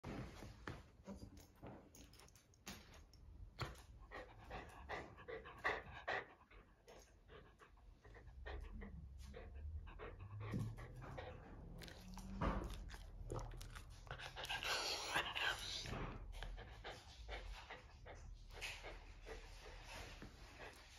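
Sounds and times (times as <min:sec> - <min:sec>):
dog panting: 0:03.6 - 0:20.9.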